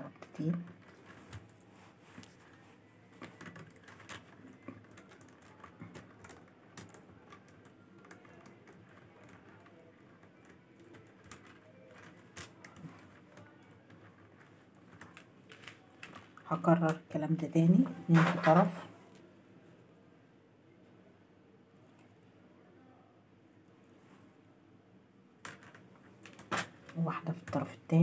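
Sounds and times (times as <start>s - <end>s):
plastic beads clicking together: 3.2s - 16.5s.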